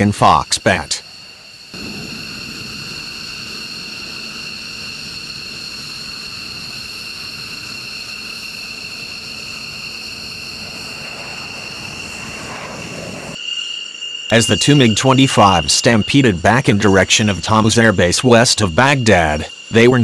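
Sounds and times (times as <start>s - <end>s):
high-pitched whine: 0.0s - 20.0s
jet engines roaring: 0.0s - 20.0s.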